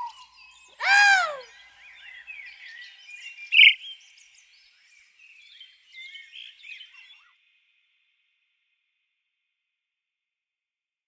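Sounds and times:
small birds chirping: 0.0s - 3.9s.

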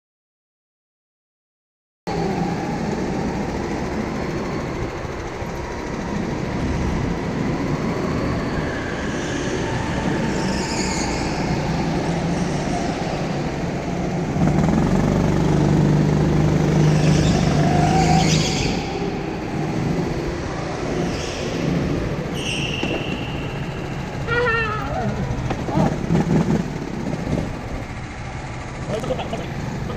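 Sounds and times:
go-kart engine running: 2.1s - 29.9s
other karts running: 2.1s - 29.9s
high-pitched squeals: 7.4s - 13.3s, 16.6s - 26.1s.

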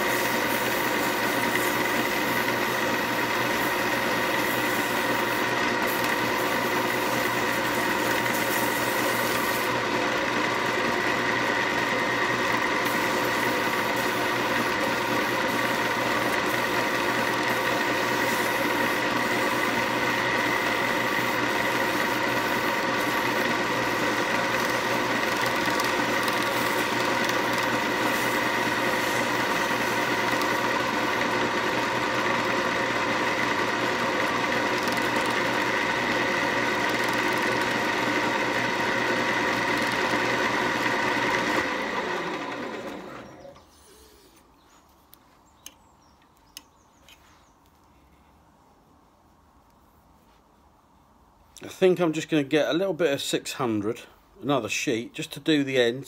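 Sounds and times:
sandpaper on spinning wood: 0.0s - 9.9s, 11.4s - 41.6s
wood lathe motor running: 0.0s - 43.6s.

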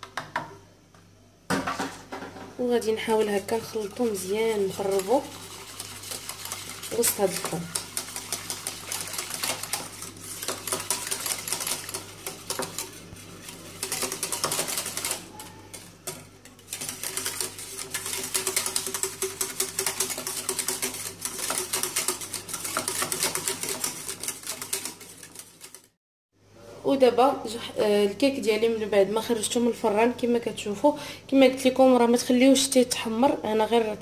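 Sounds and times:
whisk rattling against a metal pan: 3.0s - 25.9s.

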